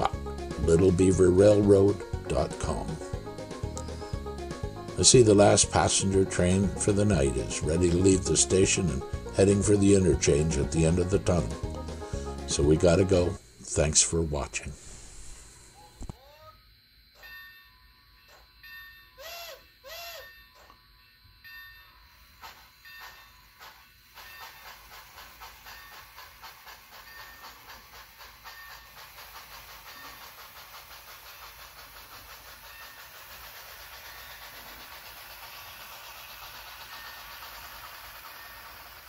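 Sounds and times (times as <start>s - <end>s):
steam locomotive chuffing with hiss: 0.0s - 15.6s, 18.3s - 20.8s, 21.5s - 39.0s
model train whistle blasts: 19.2s - 20.4s.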